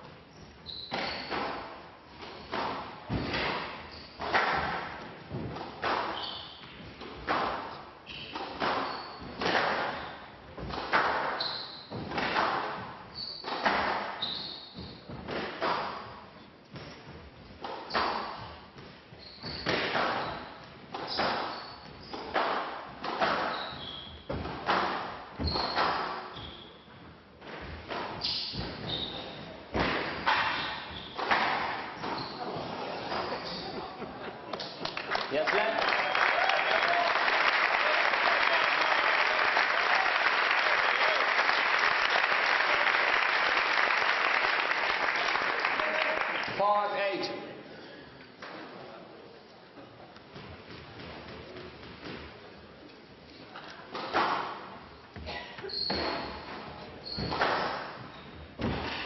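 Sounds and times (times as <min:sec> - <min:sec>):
sneaker squeaks on wooden floor: 0:00.2 - 0:01.4, 0:03.3 - 0:04.4, 0:05.9 - 0:06.9, 0:08.0 - 0:10.3, 0:11.2 - 0:12.2, 0:13.0 - 0:16.1, 0:17.9 - 0:22.4, 0:23.2 - 0:24.4, 0:25.4 - 0:27.1, 0:28.1 - 0:29.6, 0:30.2 - 0:34.0, 0:55.2 - 0:59.0
squash ball hitting racquet: 0:00.9 - 0:16.9, 0:17.6 - 0:26.4, 0:27.4 - 0:32.3, 0:55.9 - 0:58.0.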